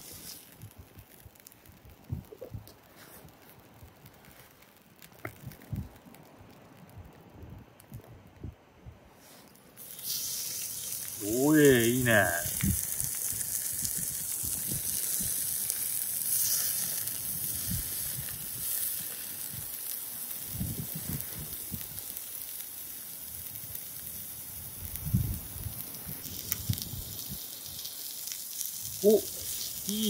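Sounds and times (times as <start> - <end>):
fish sizzling in a pan: 0.0 - 1.6, 9.2 - 30.0.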